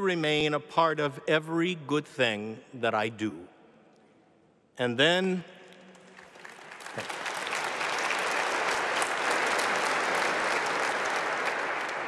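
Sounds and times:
crowd applauding: 5.9 - 12.0.

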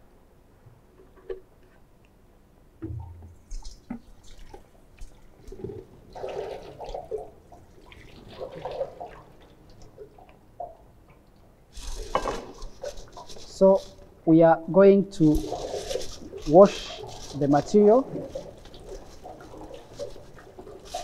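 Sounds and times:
water splashing through sieve: 2.9 - 10.8, 11.7 - 14.0, 15.2 - 21.0.

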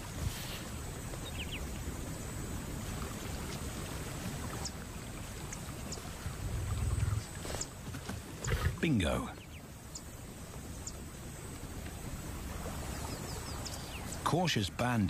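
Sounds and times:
shallow water sloshing and splashing: 0.0 - 8.8.

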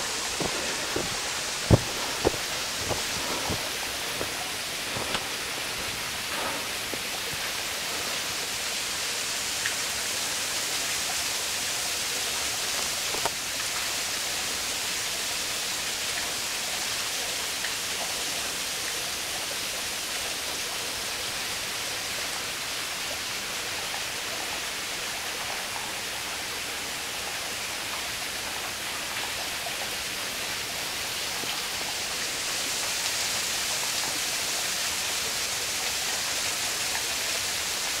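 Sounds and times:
waterfall rushing: 0.0 - 16.6.

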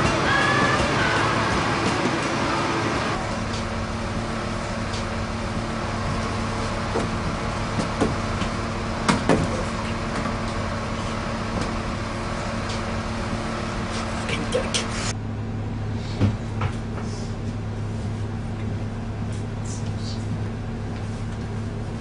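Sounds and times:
bus engine drone: 0.0 - 22.0.

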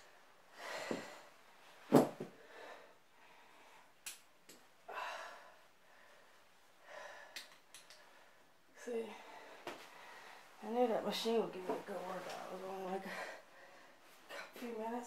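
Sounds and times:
woman breathing hard: 0.5 - 1.4, 2.3 - 4.0, 4.9 - 8.5, 9.1 - 10.5, 13.0 - 14.6.

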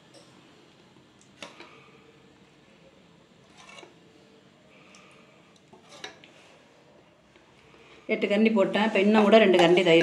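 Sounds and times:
ladle scraping steel vessel: 3.4 - 4.0, 5.8 - 6.3.

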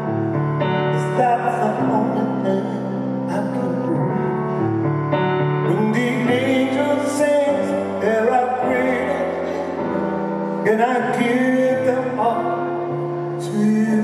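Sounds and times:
person singing: 0.0 - 14.0.

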